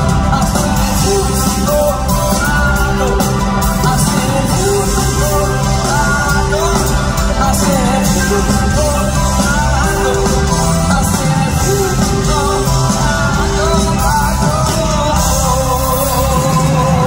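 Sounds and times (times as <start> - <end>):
drums: 0.0 - 17.0
man singing: 0.0 - 17.0
rock band playing: 0.0 - 17.0.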